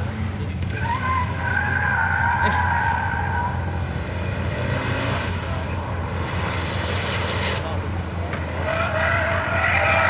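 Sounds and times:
car engine driven hard: 0:00.0 - 0:10.0.

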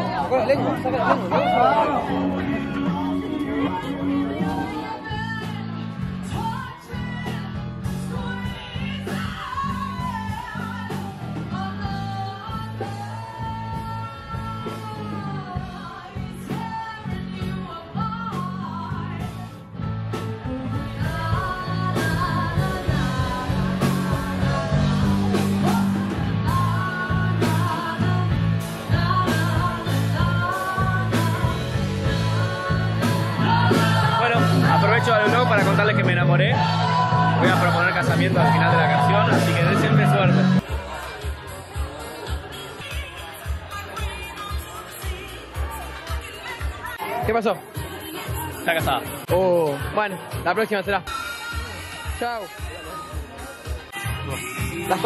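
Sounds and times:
person singing: 0:00.0 - 0:19.5, 0:20.1 - 0:40.6, 0:51.3 - 0:55.0
rock guitar with steady beat: 0:00.0 - 0:55.0.

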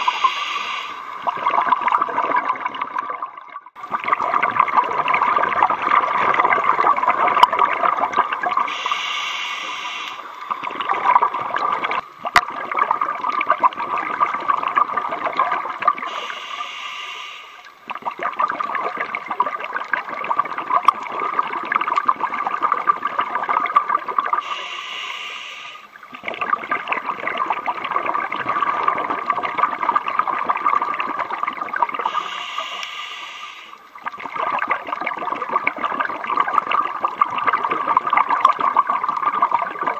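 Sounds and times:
regulator hissing inhales: 0:00.0 - 0:01.2, 0:08.7 - 0:10.4, 0:16.1 - 0:17.7, 0:24.4 - 0:25.9, 0:32.1 - 0:33.8
exhaled bubbles gurgling: 0:00.0 - 0:39.9.

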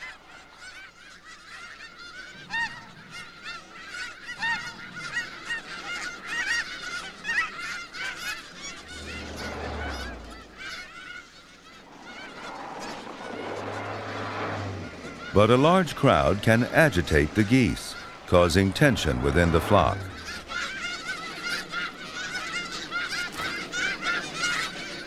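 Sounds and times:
flock of geese honking: 0:00.0 - 0:25.0.

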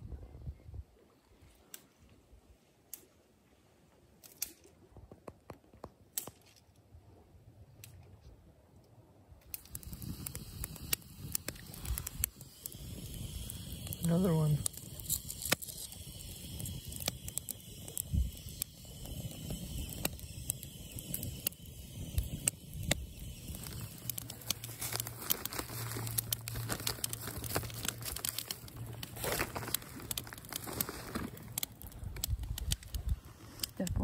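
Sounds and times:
plastic packaging crinkling: 0:23.6 - 0:33.8.

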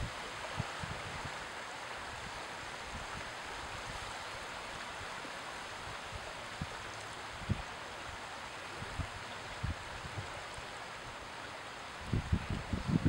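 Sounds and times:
small waves lapping at shoreline: 0:00.0 - 0:13.0
wind thumps on microphone: 0:12.1 - 0:13.0.

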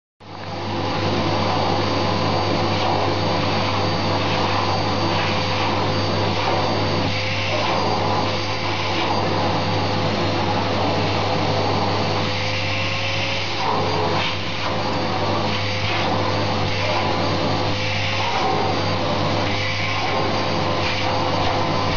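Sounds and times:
vacuum cleaner running: 0:00.2 - 0:21.9.

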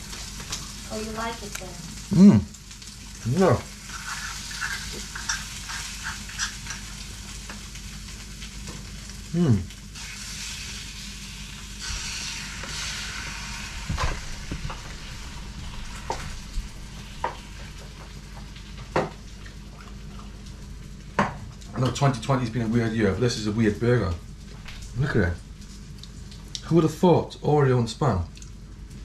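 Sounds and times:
meat sizzling in a pan: 0:00.0 - 0:21.6.

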